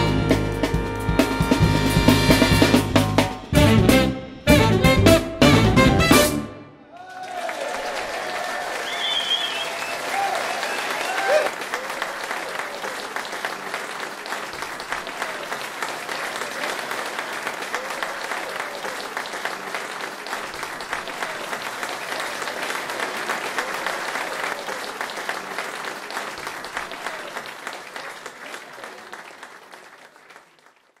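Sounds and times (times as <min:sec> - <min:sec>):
voices in crowd: 0:06.8 - 0:30.4
audience applauding: 0:06.9 - 0:31.0.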